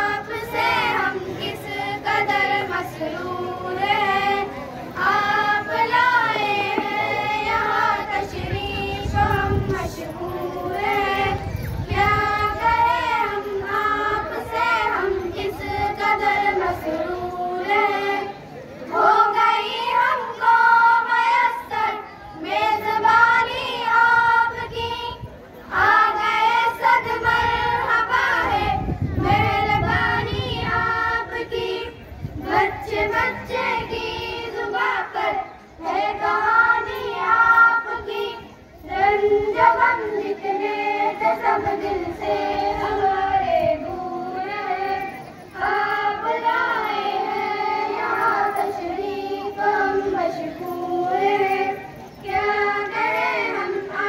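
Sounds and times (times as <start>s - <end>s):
children singing in unison: 0.0s - 54.0s.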